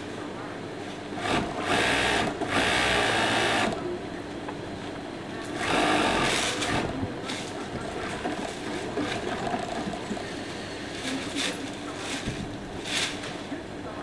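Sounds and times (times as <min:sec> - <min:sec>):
sewing machine stitching: 0:01.2 - 0:03.8, 0:05.6 - 0:06.9.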